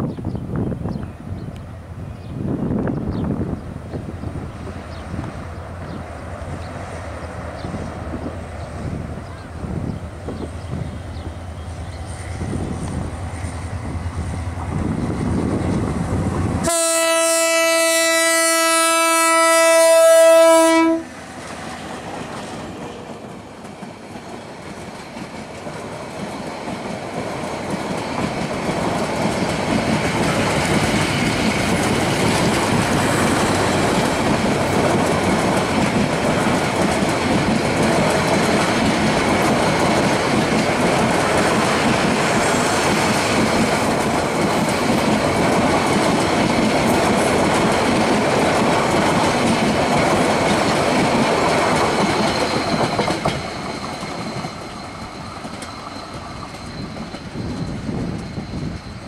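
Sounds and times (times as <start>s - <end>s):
diesel locomotive engine rumble: 0.0s - 59.0s
train horn blast: 16.6s - 21.3s
train wheels clattering over rails: 20.9s - 59.0s.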